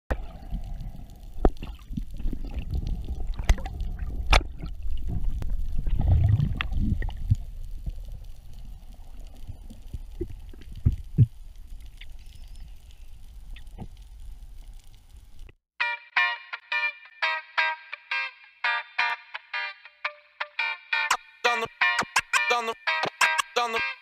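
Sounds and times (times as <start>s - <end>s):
muffled underwater water wash: 0.1s - 15.5s
sharp underwater clicks and knocks: 3.2s - 6.0s.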